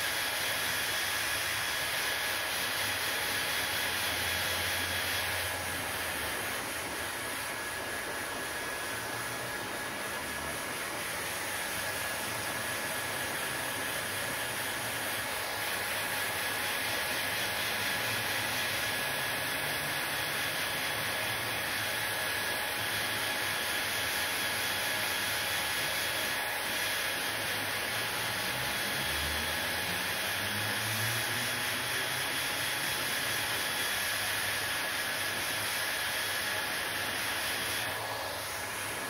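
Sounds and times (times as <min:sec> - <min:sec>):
hair dryer blowing: 0:00.0 - 0:39.0.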